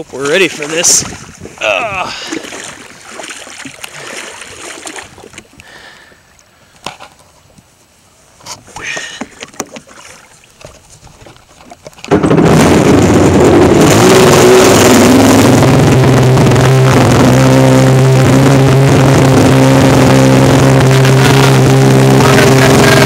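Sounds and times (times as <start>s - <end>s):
water and wind rushing: 0.0s - 23.0s
jet ski engine: 11.4s - 23.0s.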